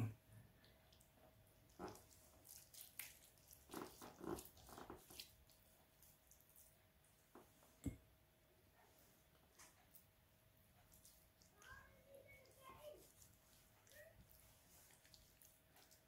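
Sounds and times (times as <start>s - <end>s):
wet squelching of hands on chicken: 0.6s - 6.8s, 10.8s - 16.0s.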